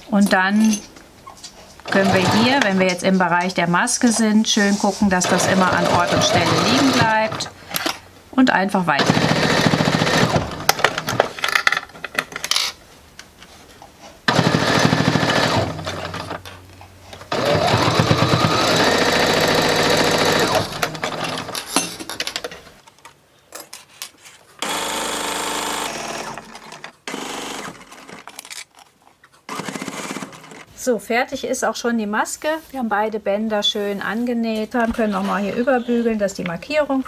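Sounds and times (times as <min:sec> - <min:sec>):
sewing machine stitching: 0:01.8 - 0:03.0, 0:05.2 - 0:07.5, 0:09.0 - 0:11.2, 0:14.3 - 0:16.4, 0:17.3 - 0:21.6, 0:24.6 - 0:28.3, 0:29.5 - 0:30.7.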